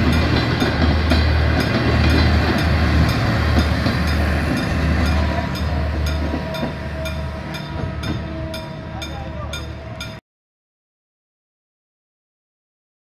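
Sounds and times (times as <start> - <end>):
train wheels rumbling on rails: 0.0 - 10.2.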